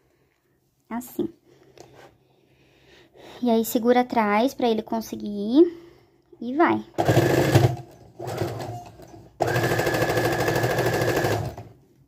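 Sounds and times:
sewing machine stitching: 7.0s - 11.8s.

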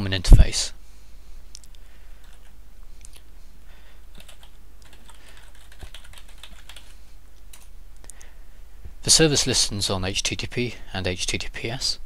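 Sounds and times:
keyboard typing: 2.2s - 2.5s, 4.1s - 7.7s.

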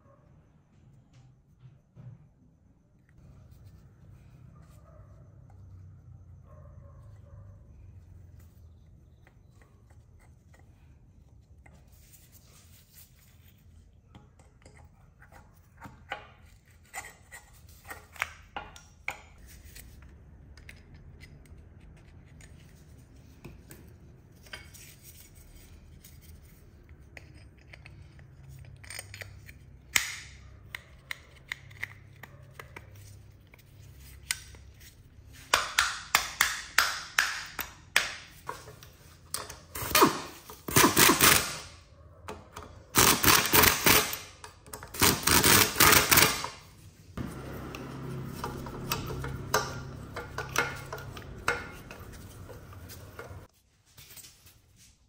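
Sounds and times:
metal parts clicking and knocking: 42.3s - 46.6s.

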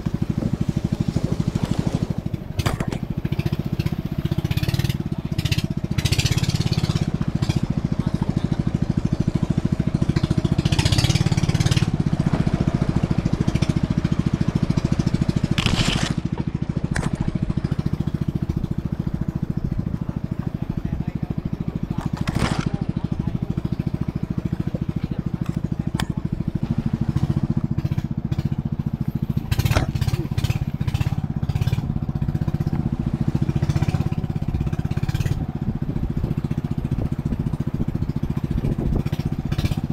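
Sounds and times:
sharp knocks or splashes: 0.0s - 7.7s, 29.4s - 35.4s
small boat engine running: 0.0s - 39.9s.

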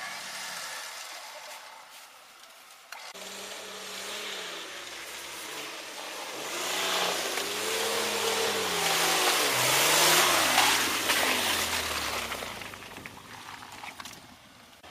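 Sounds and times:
suv engine: 0.0s - 14.9s
tyres through mud and brush: 0.0s - 14.9s.

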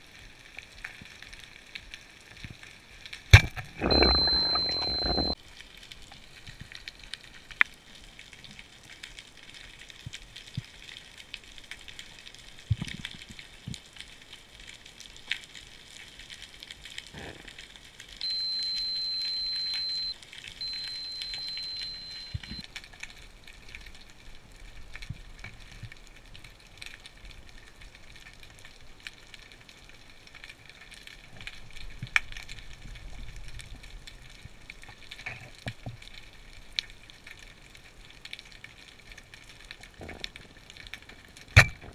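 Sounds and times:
underwater clicking and crackle: 0.0s - 41.9s
dive watch alarm beeps: 3.8s - 5.4s, 18.2s - 22.6s.

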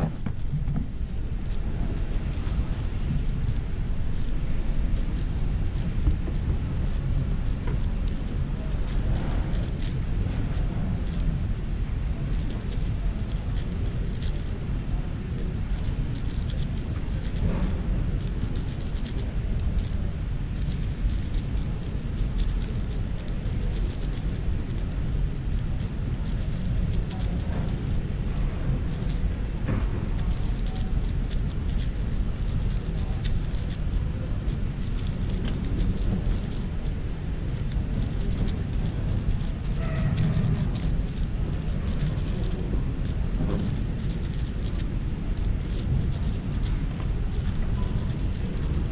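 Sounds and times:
low rumble of large hall: 0.0s - 48.9s
puzzle cube plastic clicks: 20.6s - 24.9s, 30.2s - 33.9s, 34.5s - 46.7s.

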